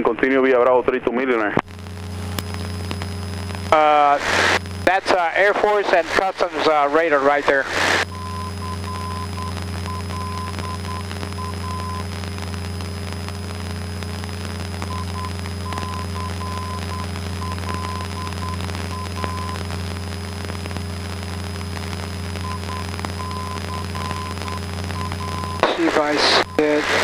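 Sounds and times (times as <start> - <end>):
high morse beeping tone: 8.1 - 12.0, 14.8 - 19.6, 22.4 - 25.6.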